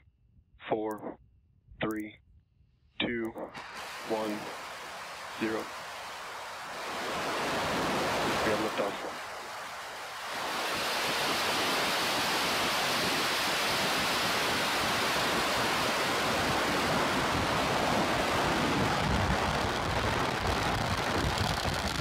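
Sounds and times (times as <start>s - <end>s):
rocket engines thundering: 3.4s - 22.0s.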